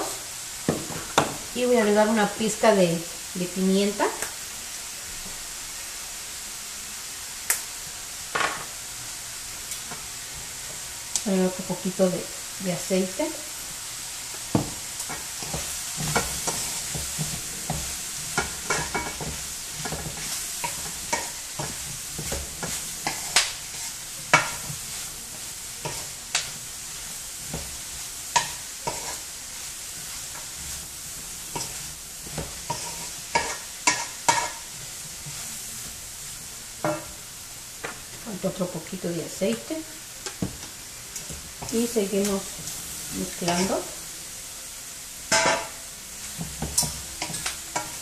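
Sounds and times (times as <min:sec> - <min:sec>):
food sizzling in oil: 0:00.0 - 0:48.0
wooden spatula scraping pan: 0:28.4 - 0:29.3, 0:29.9 - 0:36.0.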